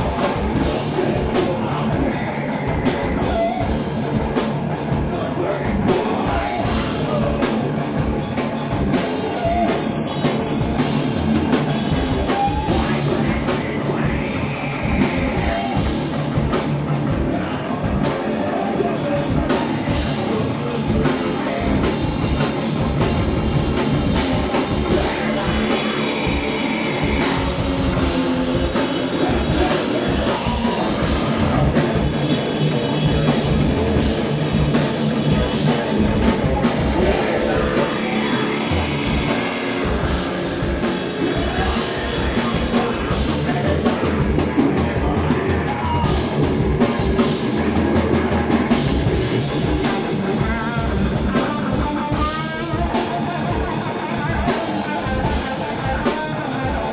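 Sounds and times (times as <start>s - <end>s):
person singing into a microphone: 0.0s - 3.7s, 5.1s - 7.8s, 24.6s - 32.0s, 36.6s - 44.2s
distorted guitars: 0.0s - 56.9s
drum kit with cymbals: 0.0s - 56.9s.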